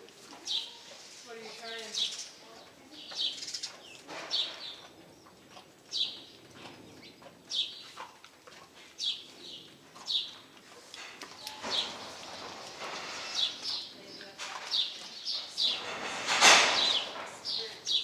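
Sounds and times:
bird chirping: 1.6 - 8.1, 9.0 - 10.4, 13.3 - 16.0.

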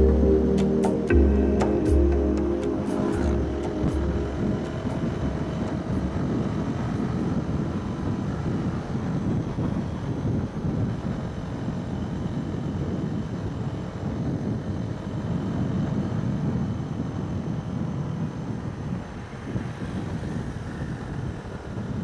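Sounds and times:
motorcycle engine drone: 0.0 - 22.0
wind buffeting microphone: 2.8 - 22.0.

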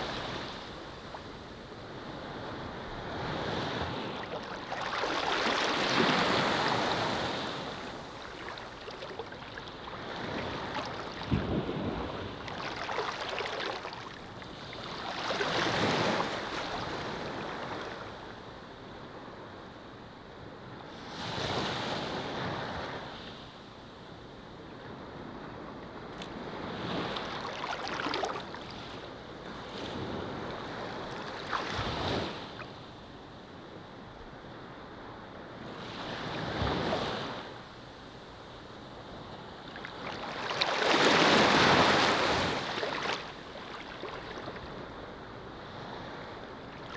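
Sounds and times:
ocean waves washing in: 0.0 - 18.2, 26.4 - 32.7.

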